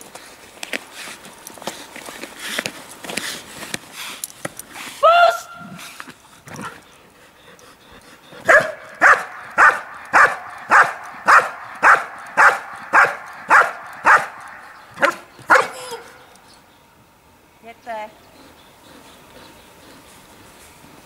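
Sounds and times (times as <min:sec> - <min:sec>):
dog barking: 0:08.5 - 0:16.2.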